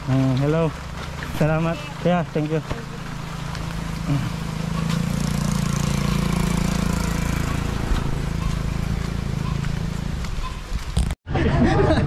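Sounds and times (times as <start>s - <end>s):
motorcycle engine running: 2.7s - 10.6s.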